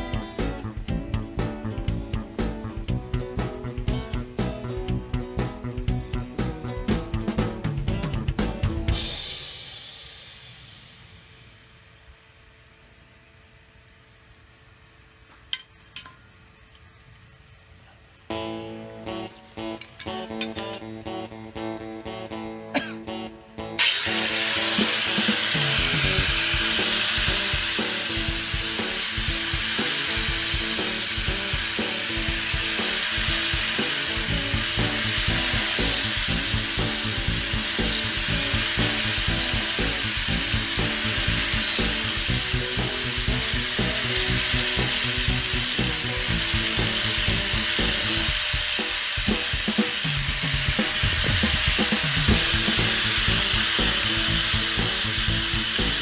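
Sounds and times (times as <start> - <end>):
angle grinder grinding steel: 19.3 - 21.0, 23.8 - 56.0.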